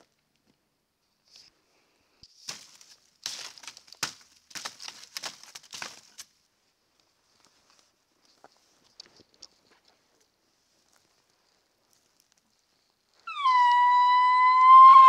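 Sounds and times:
twigs crackling and snapping: 2.2 - 6.4, 10.8 - 13.2
footsteps through dry twigs: 2.3 - 6.4, 7.0 - 13.2.

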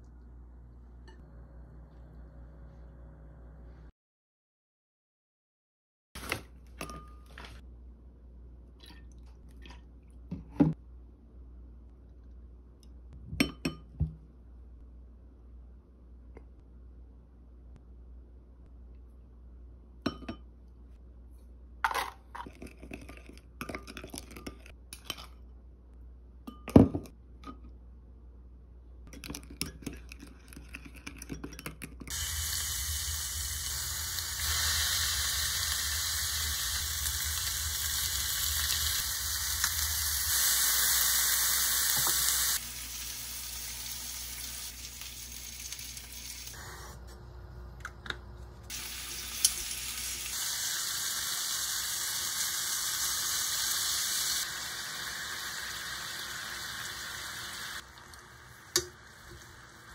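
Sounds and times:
food sizzling in frying pan: 32.1 - 46.6, 48.7 - 59.9.

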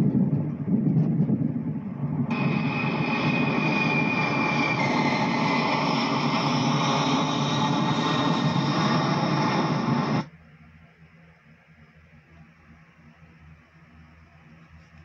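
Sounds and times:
jet aircraft roar through speakers: 0.0 - 10.3
faint room hum: 10.3 - 15.0.

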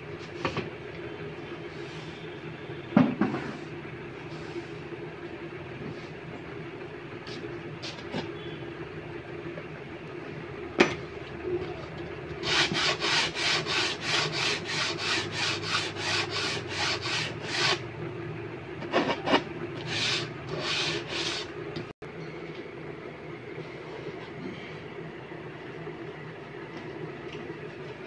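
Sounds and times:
file rasping on board edge: 12.4 - 17.8, 19.0 - 21.5.

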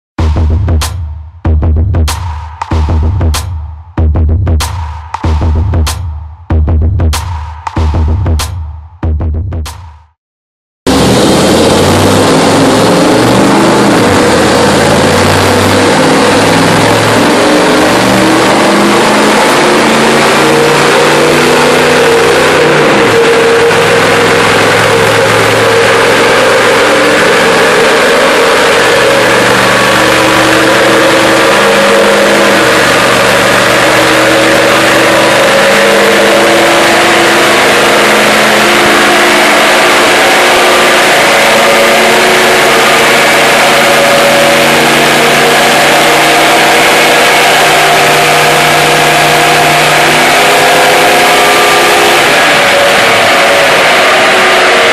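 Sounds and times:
truck engine running under load: 10.9 - 54.9.

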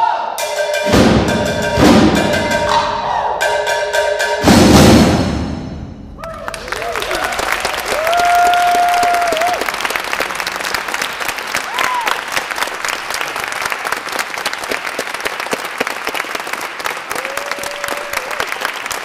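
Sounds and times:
person whooping: 6.2 - 9.6, 11.7 - 12.3, 17.1 - 18.5
audience applauding: 6.2 - 19.0.

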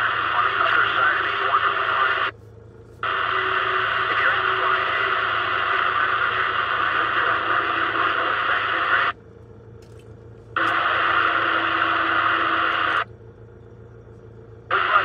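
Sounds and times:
radio static hiss: 0.0 - 2.3, 3.0 - 9.2, 10.6 - 13.1, 14.6 - 15.0.

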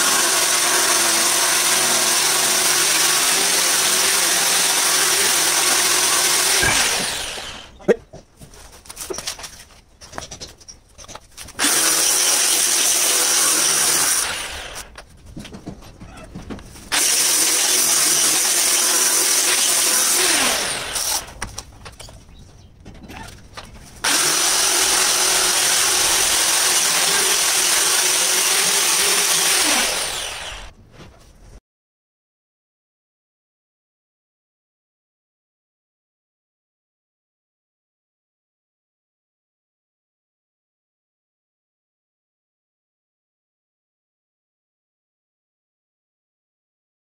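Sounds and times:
angle grinder cutting stone: 0.0 - 7.8, 11.6 - 14.9, 16.9 - 21.3, 24.0 - 30.7.

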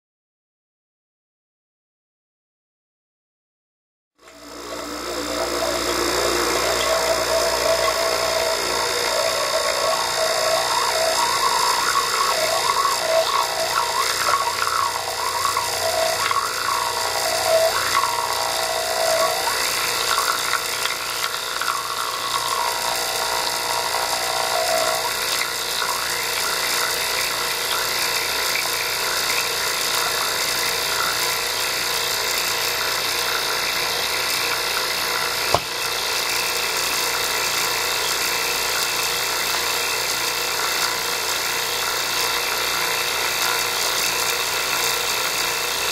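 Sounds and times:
wavering sliding tone: 4.2 - 25.5
high electrical buzz and whine: 4.2 - 45.9.

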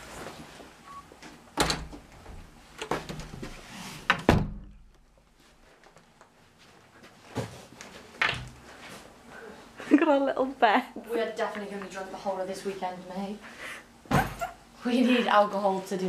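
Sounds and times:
door shutting with heavy thud: 1.6 - 3.3, 4.1 - 4.8
knocks and thumps on door: 4.1 - 4.7.

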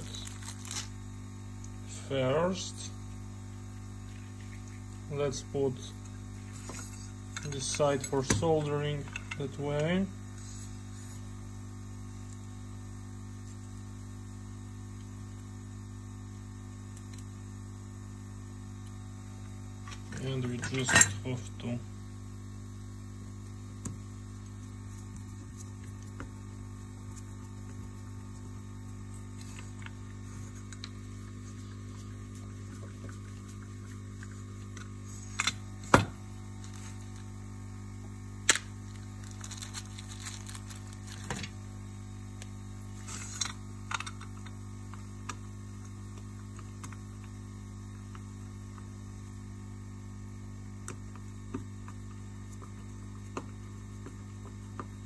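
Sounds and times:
electrical mains hum: 0.0 - 55.0.

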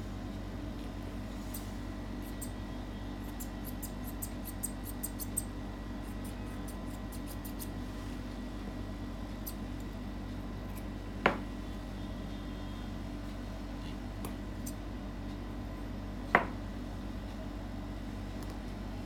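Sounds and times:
low background hum: 0.0 - 19.0
scissors clicking: 3.3 - 5.5.

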